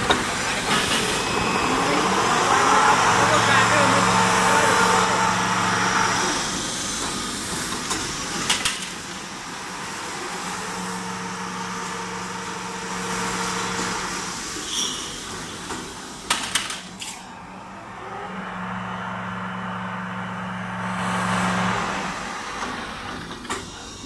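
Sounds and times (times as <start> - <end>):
roll-forming machine running: 0.0 - 14.6, 15.3 - 23.4.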